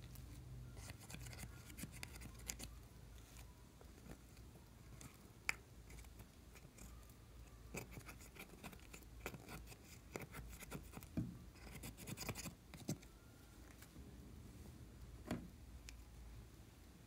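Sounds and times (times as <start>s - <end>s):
fingers scraping eyeshadow: 0.7s - 2.7s, 7.7s - 13.1s.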